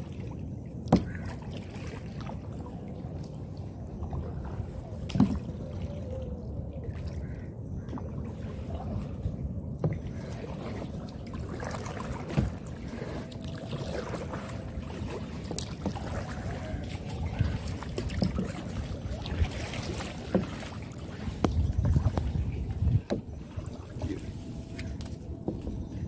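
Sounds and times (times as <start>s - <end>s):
low wash of water: 0.0s - 26.0s
oar knocking against boat: 0.9s - 1.3s, 19.9s - 23.4s.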